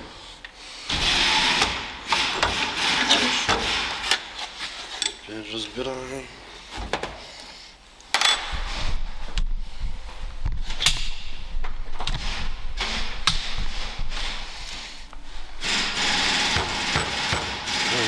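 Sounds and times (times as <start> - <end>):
steady dense noise: 0.0 - 18.0.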